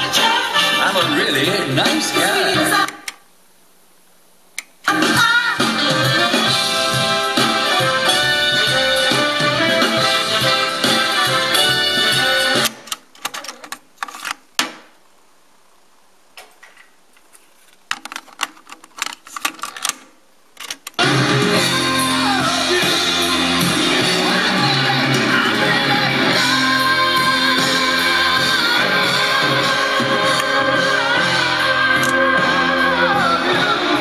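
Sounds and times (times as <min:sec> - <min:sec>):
music with singing from tape: 0:00.0 - 0:03.2, 0:04.8 - 0:12.9, 0:20.8 - 0:34.0
cassette being taken out and put in: 0:12.6 - 0:14.9, 0:16.4 - 0:21.0
cassette deck keys clicking: 0:17.9 - 0:21.0.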